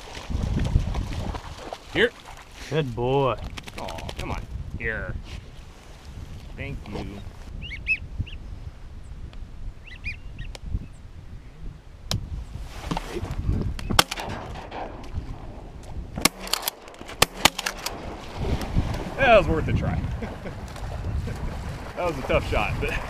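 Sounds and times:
shotgun blasts: 13.9 - 15.5, 16.2 - 18.2.

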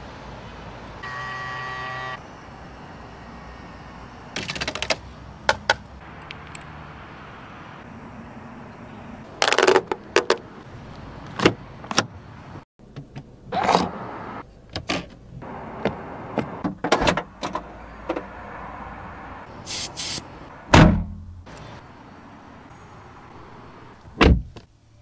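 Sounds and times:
car door shutting thump: 20.7 - 21.2, 24.2 - 24.6.

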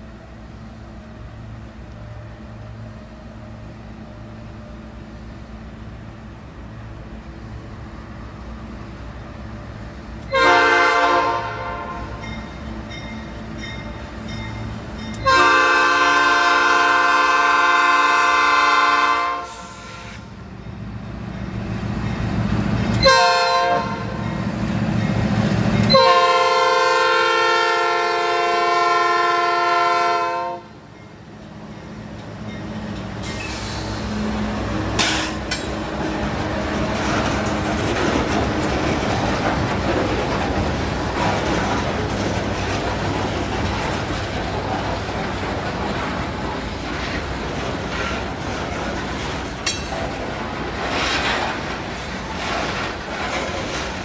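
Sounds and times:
locomotive passing: 0.0 - 54.0
wheels clacking on rails: 8.2 - 17.2, 20.5 - 27.1, 30.8 - 54.0
locomotive air horn: 10.3 - 12.2, 15.2 - 20.3, 23.0 - 24.2, 25.9 - 30.8
freight cars rumbling past: 30.8 - 54.0.

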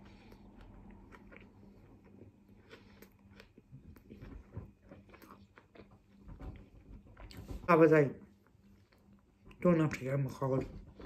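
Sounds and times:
faint chewing: 0.0 - 7.6.

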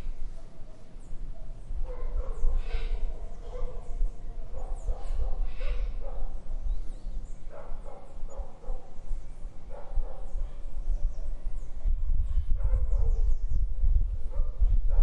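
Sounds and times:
dog barking: 0.3 - 6.4, 7.5 - 9.0, 9.7 - 11.3, 12.2 - 13.3, 14.2 - 15.0.

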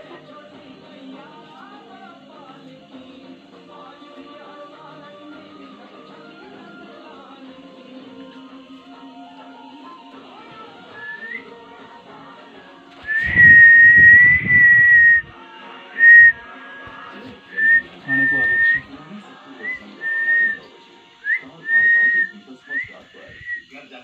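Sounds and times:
person whistling: 10.9 - 11.6, 13.0 - 15.3, 16.0 - 16.4, 17.5 - 18.9, 19.6 - 20.6, 21.2 - 23.7.

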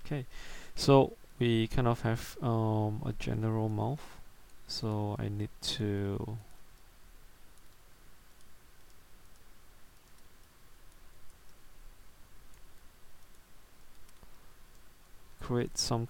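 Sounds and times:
low room hiss: 0.0 - 16.0
mouse and keyboard clicks: 7.6 - 11.6, 12.5 - 14.9.

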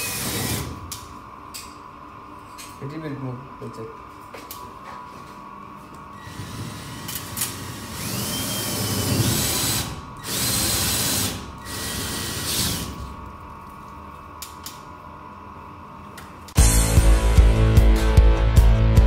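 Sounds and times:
cordless drill boring: 0.0 - 0.7, 6.2 - 13.0.

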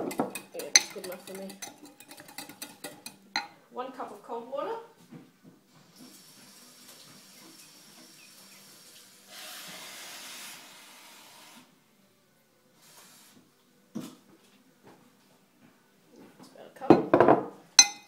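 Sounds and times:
kitchen tap running: 5.9 - 10.5
water gushing: 6.0 - 11.6.

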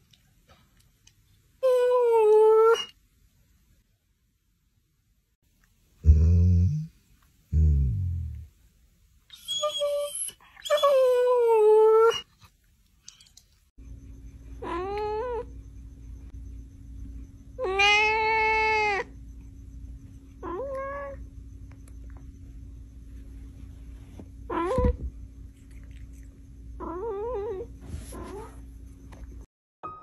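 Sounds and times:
cat meowing: 17.6 - 19.1.

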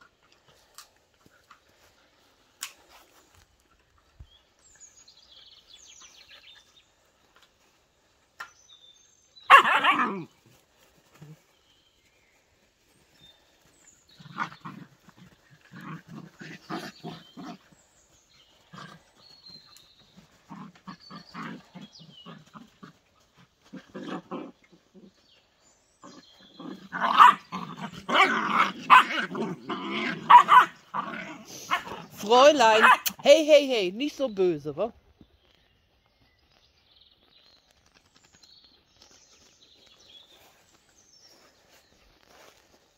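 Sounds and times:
puppies barking: 9.5 - 10.2, 26.1 - 32.1
puppies growling: 13.6 - 25.2, 26.0 - 32.2.

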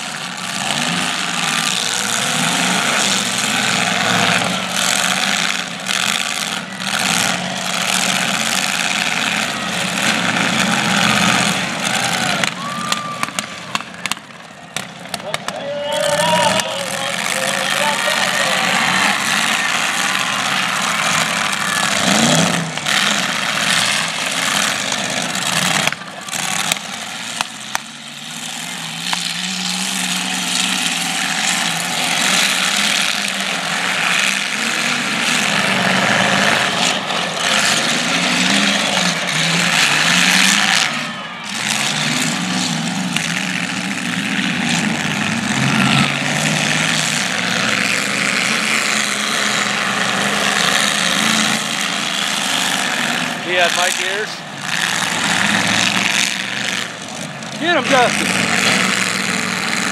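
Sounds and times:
car engines revving: 0.0 - 59.9
cars crashing together: 0.2 - 59.9.

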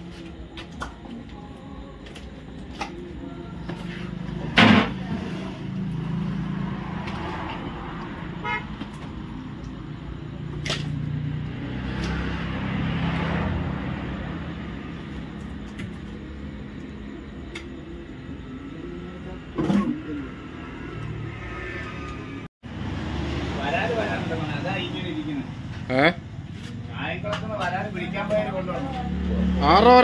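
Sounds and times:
loud sharp knock: 4.6 - 5.0.

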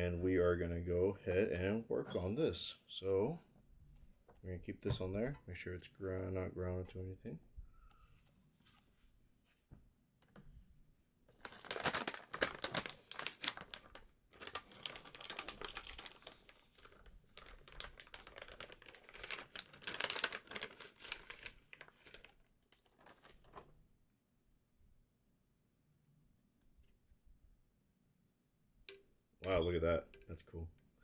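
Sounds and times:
plastic packaging crinkling: 11.3 - 23.7.

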